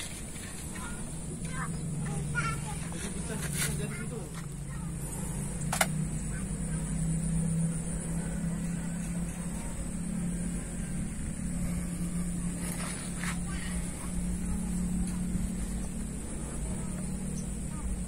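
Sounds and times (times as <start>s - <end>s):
diesel engine idling: 0.0s - 18.0s
sharp click: 5.6s - 6.0s.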